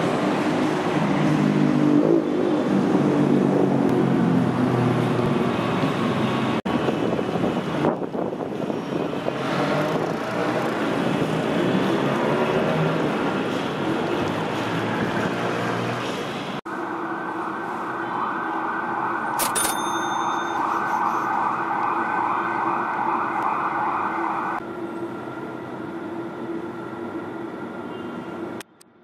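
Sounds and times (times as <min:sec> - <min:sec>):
siren-like rising tone: 0:20.4 - 0:25.0.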